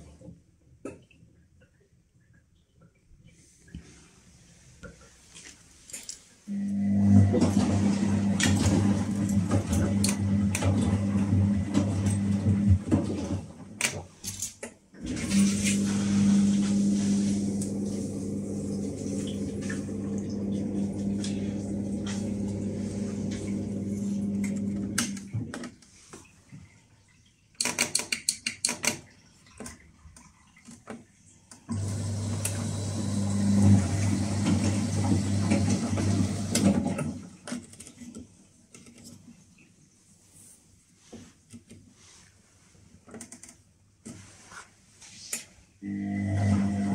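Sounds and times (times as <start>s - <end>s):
washing machine humming: 6.5s - 14.1s, 14.9s - 27.2s, 30.2s - 37.5s, 45.8s - 46.9s.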